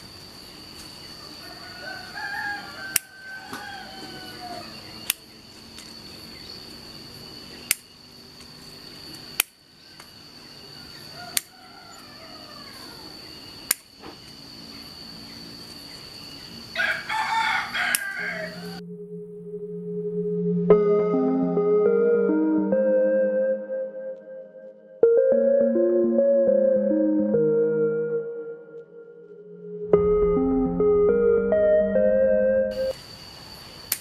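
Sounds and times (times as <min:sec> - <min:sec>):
rooster crowing: 0:01.2 - 0:05.0, 0:10.6 - 0:13.3, 0:16.7 - 0:18.9
scissors snipping twigs: 0:05.0 - 0:05.9, 0:09.4 - 0:10.1, 0:11.3 - 0:11.5, 0:13.7 - 0:13.9, 0:17.9 - 0:18.2.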